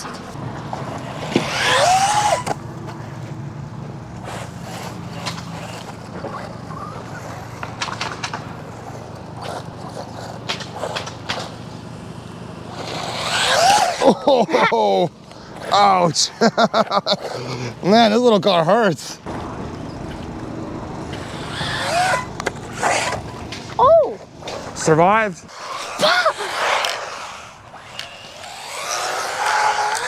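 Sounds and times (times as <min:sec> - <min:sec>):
rc truck motor whine: 0:00.0 - 0:03.2, 0:04.0 - 0:14.3, 0:19.3 - 0:23.5, 0:25.5 - 0:30.0
tyres rolling and scraping: 0:00.0 - 0:30.0.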